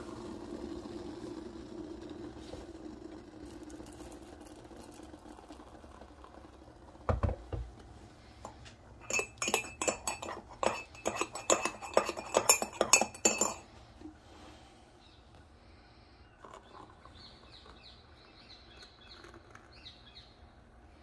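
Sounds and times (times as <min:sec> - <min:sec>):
teaspoon clinking in ceramic mug: 0:09.0 - 0:13.6.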